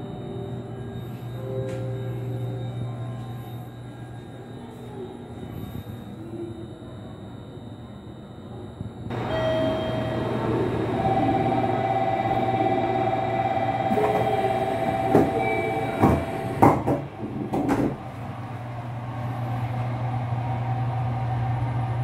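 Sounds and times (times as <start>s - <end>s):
door warning tone: 0.0s - 16.6s
train carriage hum: 0.0s - 22.0s.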